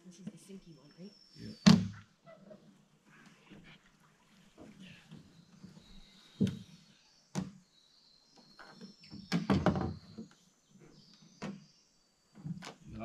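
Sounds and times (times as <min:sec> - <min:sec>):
canoe hull knocking against logs: 0:06.4 - 0:06.7, 0:08.4 - 0:10.4.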